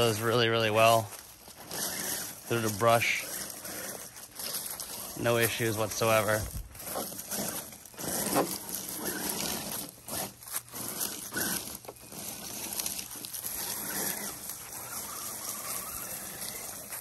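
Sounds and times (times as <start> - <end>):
rustle of leaves and twigs: 0.0 - 17.0.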